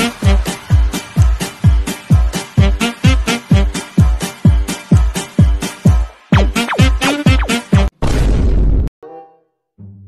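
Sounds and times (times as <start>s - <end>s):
music with steady beat: 0.0s - 7.9s.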